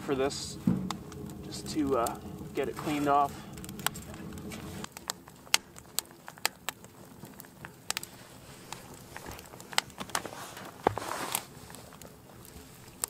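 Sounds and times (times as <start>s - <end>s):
faint steady background: 0.0s - 13.0s
wood crackling and popping: 0.0s - 13.0s.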